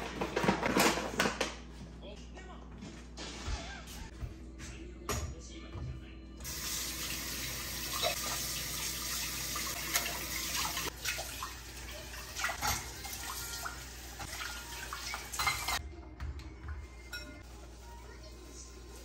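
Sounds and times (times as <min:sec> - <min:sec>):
utensils clinking: 0:14.2 - 0:15.8, 0:17.0 - 0:17.5.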